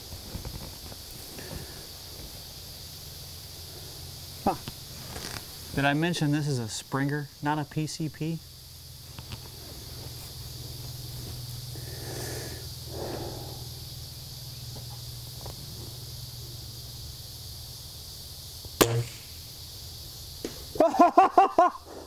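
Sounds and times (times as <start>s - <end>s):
air rifle shot: 18.8s - 19.5s.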